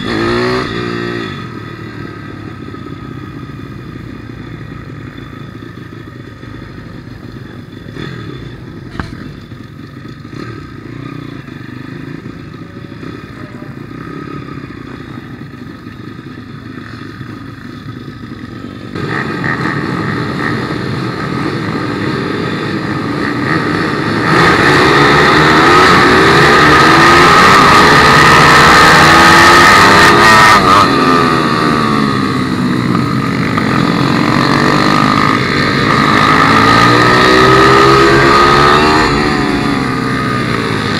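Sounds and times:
pit bike engine revving: 0:22.8 - 0:40.9.

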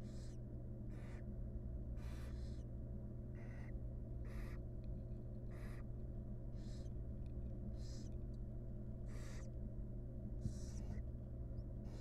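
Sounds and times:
owl nestlings hissing: 0:00.0 - 0:01.2, 0:02.0 - 0:02.7, 0:03.4 - 0:04.6, 0:05.5 - 0:05.8, 0:06.5 - 0:07.0, 0:07.7 - 0:08.2, 0:09.0 - 0:09.6, 0:10.4 - 0:11.0
low electrical hum: 0:00.0 - 0:12.0.

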